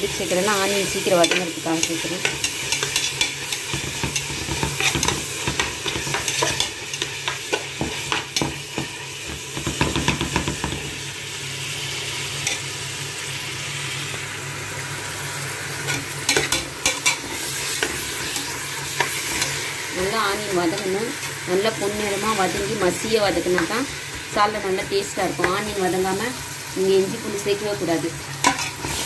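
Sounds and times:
onions sizzling in oil: 0.0 - 29.0
spoon scraping a pan: 0.9 - 10.2, 15.9 - 19.8, 28.4 - 29.0.

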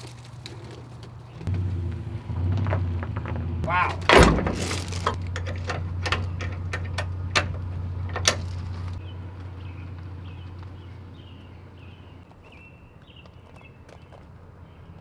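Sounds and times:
trailer coupler clanking: 2.4 - 9.0.

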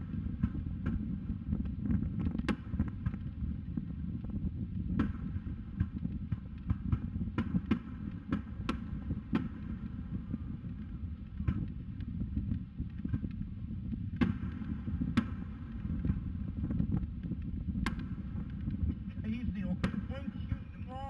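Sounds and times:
distant firework shells bursting: 0.0 - 4.0, 4.9 - 21.0
low rumble: 0.0 - 21.0.

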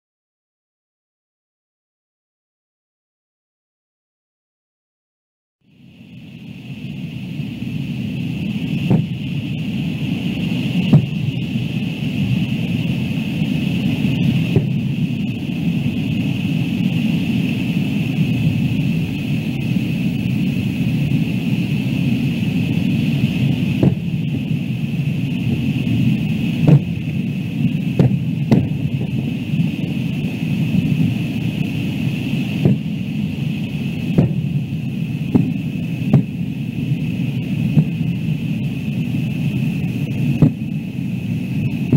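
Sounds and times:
low rumble and hiss: 5.7 - 41.9
fireworks bangs: 8.5 - 9.3, 10.6 - 11.6, 14.0 - 15.5, 23.3 - 24.4, 25.8 - 30.1, 31.8 - 36.6.

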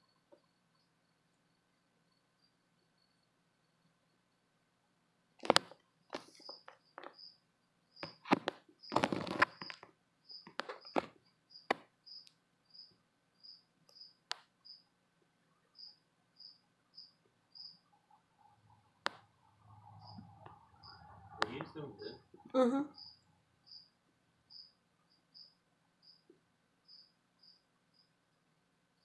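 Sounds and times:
cricket chirping: 0.0 - 4.8, 5.4 - 29.0
sharp clicks and crackles: 5.4 - 7.2.

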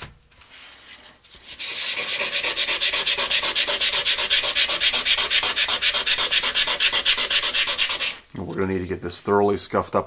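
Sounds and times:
hand sanding fiberglass tube: 1.3 - 8.2.

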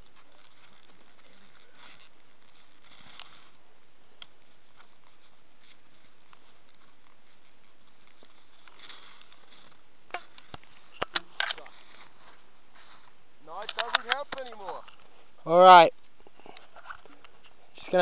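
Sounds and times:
skis crunching in powder snow: 0.0 - 11.0, 11.6 - 14.9.

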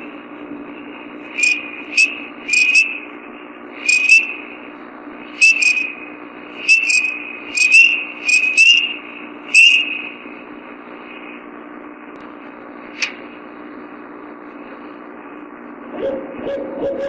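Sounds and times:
background hiss and hum: 0.0 - 17.0
high-pitched whistled bird calls: 1.4 - 3.0, 3.8 - 4.4, 5.4 - 6.0, 6.6 - 10.2
sharp click: 13.0 - 13.2.

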